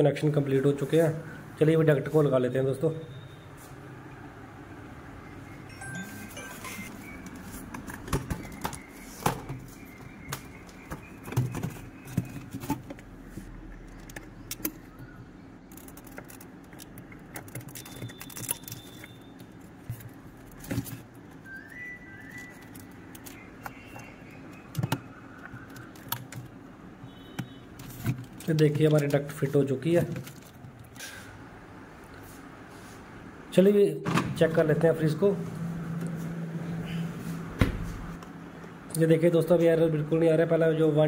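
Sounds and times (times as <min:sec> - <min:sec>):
plastic cover clicks and rattles: 0:15.7 - 0:19.1.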